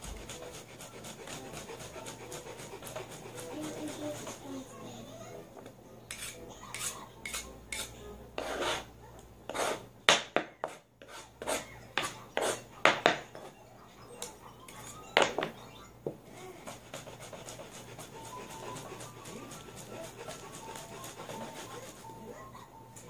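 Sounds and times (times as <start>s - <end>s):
knife scraping plastic cutting board: 6.1s - 8.9s, 9.5s - 9.8s, 16.7s - 22.0s.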